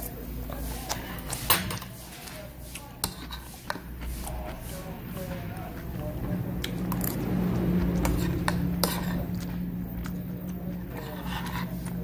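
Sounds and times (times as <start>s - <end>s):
steady low hum: 0.0s - 12.0s
spoon scraping ceramic plate: 1.0s - 5.4s, 8.0s - 9.5s, 10.9s - 12.0s.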